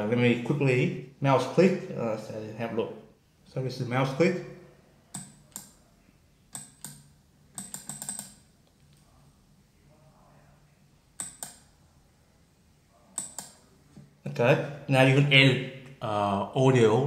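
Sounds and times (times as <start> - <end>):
computer mouse clicking: 5.1 - 5.8, 6.5 - 9.0, 11.2 - 11.7, 13.2 - 13.6.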